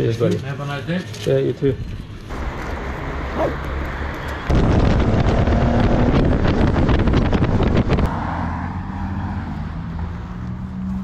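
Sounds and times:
wind buffeting the microphone: 4.4s - 8.1s.

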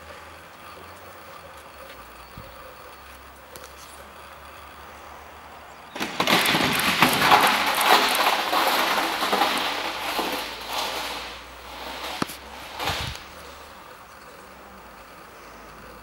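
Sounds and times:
metal drum rattling as it rolls: 5.9s - 14.0s.

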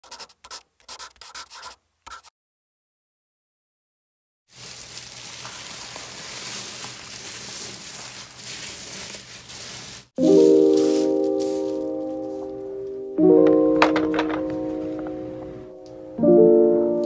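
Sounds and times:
bubble wrap crinkling: 4.5s - 13.0s
music with bell-like tones: 10.2s - 17.0s.

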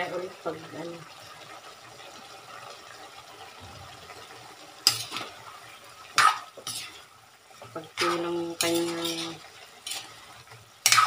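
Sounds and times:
meat sizzling in a wok: 0.0s - 11.0s
metal spatula scraping wok: 4.8s - 5.4s, 6.1s - 11.0s.

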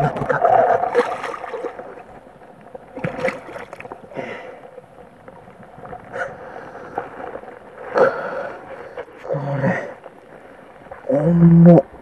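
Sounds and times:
running water: 0.0s - 12.0s.

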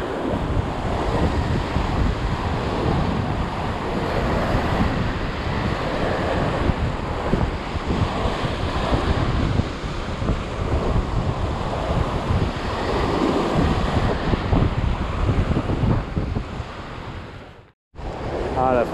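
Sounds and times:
wind buffeting microphone: 0.0s - 18.9s.

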